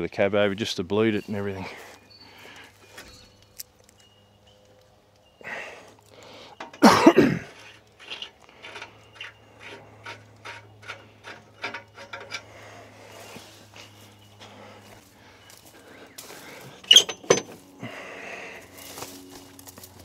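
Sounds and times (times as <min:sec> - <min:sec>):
man coughing: 0:06.8 - 0:07.6.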